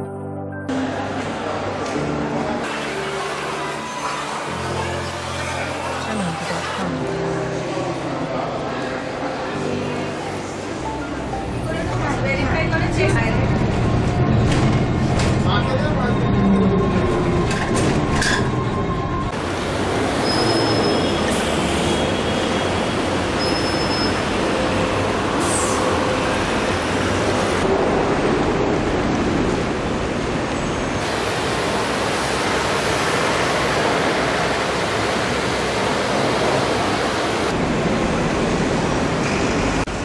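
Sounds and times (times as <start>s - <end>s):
city traffic rumble and hiss: 19.3s - 40.0s.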